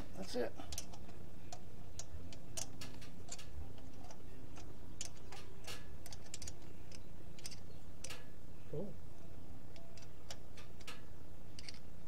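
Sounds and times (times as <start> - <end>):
steady low hum: 0.0 - 12.0
ratcheting wrench clicking: 0.7 - 3.5, 4.1 - 8.3, 9.7 - 11.9.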